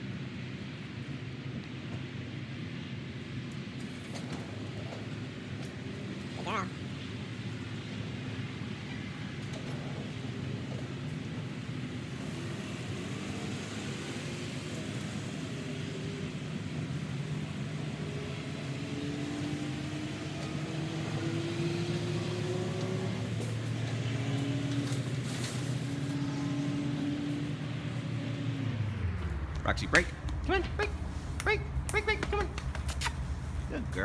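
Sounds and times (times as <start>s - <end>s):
vehicle engine humming: 0.0s - 34.0s.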